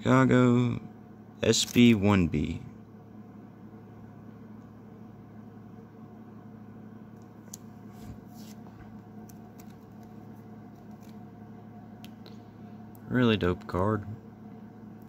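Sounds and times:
steady low hum: 0.0 - 15.0
trading cards rustling: 7.5 - 11.3.

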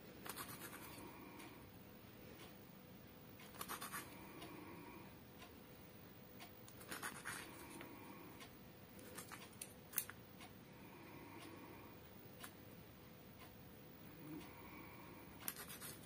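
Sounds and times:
knife scratching on tile: 0.2 - 1.0, 3.5 - 4.2, 6.8 - 7.7, 9.0 - 9.6, 15.4 - 16.0.

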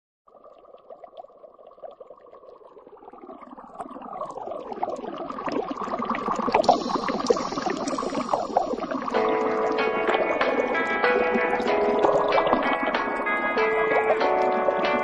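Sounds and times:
water-like bubbling sound effect: 0.3 - 15.0
pop song intro: 9.2 - 15.0.

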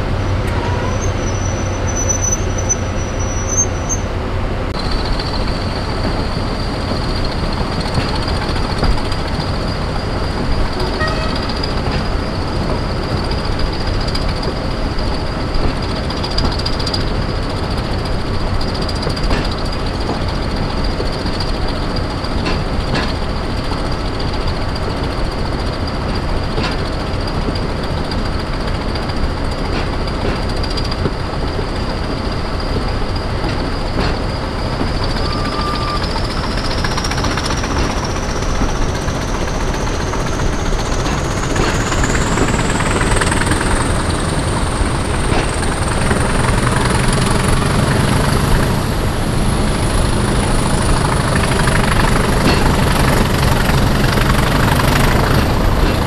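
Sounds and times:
diesel locomotive engine rumble: 0.0 - 56.0
thin high whistle: 35.2 - 36.4.

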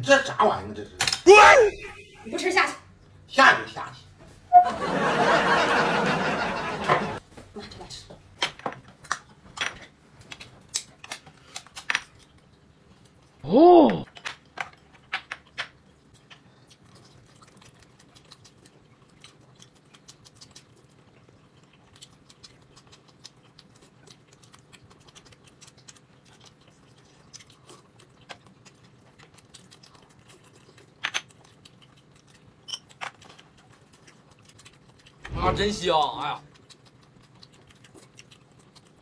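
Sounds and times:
soft chewing: 8.8 - 13.4, 14.5 - 35.3, 36.4 - 39.0.

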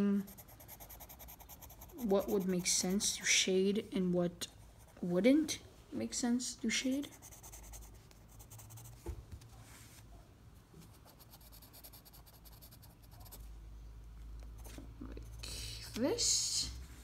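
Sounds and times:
pencil scratching on paper: 0.0 - 3.4, 6.8 - 9.0, 10.9 - 13.4.

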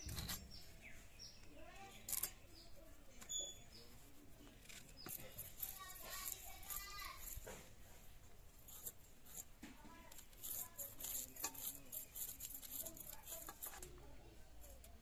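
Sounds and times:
blade scraping and cutting food: 0.0 - 0.7, 1.8 - 14.0
bird chirps: 2.4 - 4.0.

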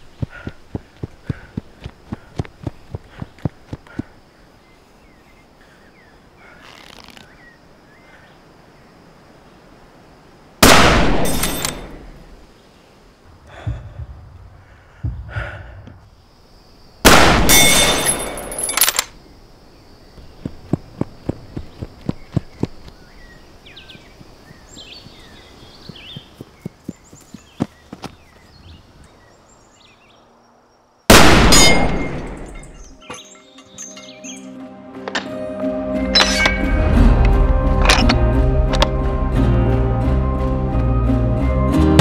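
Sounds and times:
light footsteps on ground: 0.0 - 4.2, 20.2 - 29.2
rifle shots: 10.6 - 12.0, 17.1 - 19.0, 31.1 - 32.5.

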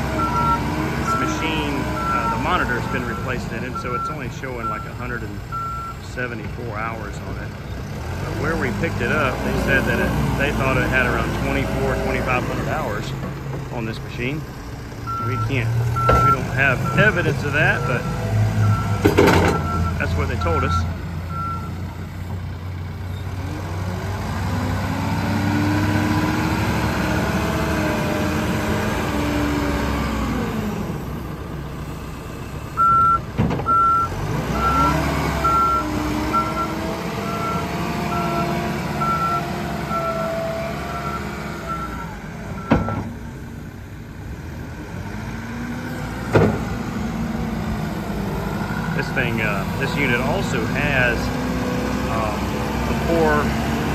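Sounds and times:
diesel engine revving: 0.0 - 53.9
backup alarm beeping: 0.2 - 1.4, 2.0 - 6.0, 15.1 - 21.7, 32.8 - 38.4, 39.0 - 40.2, 41.0 - 43.1.

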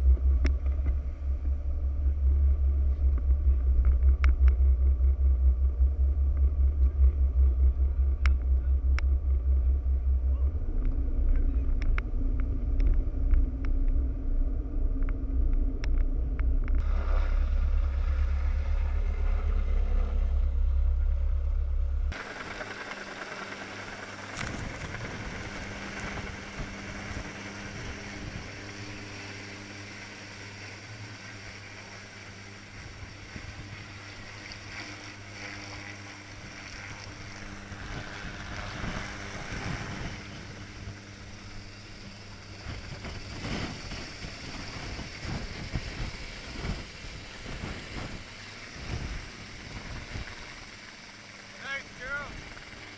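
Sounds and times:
boat engine rumbling: 0.0 - 52.9
faint steady hum: 0.0 - 52.9
wind rushing on microphone: 24.3 - 29.6, 35.8 - 41.0, 42.4 - 50.6.

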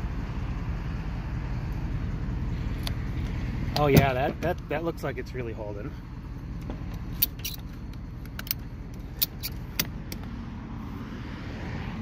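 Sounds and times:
low engine rumble: 0.0 - 12.0
metallic clicks of ratchet straps: 6.9 - 10.3.

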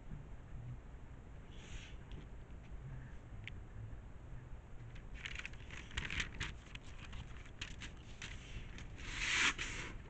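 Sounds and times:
cardboard rustling and clicks: 4.9 - 10.0.

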